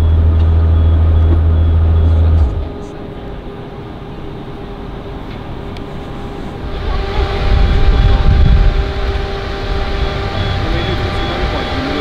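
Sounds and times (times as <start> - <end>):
car engine running: 0.0 - 3.6, 6.6 - 12.0.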